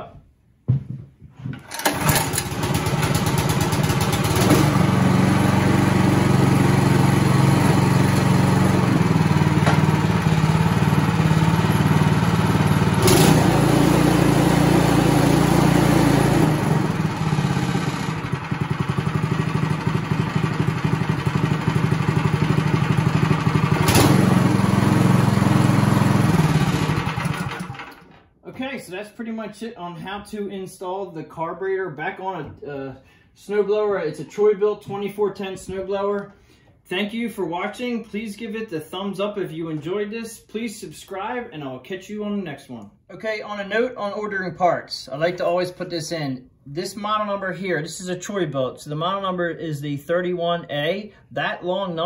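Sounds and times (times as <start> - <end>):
snow thrower engine running: 1.7 - 28.1.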